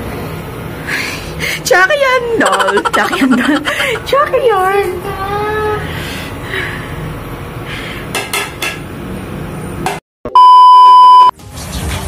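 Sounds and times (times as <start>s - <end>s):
test-tone beep: 10.3s - 11.3s.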